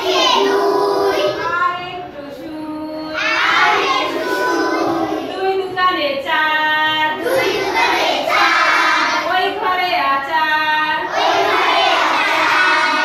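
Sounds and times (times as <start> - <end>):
children singing in unison: 0.0 - 2.2, 3.0 - 5.4, 7.0 - 9.4, 11.0 - 13.0.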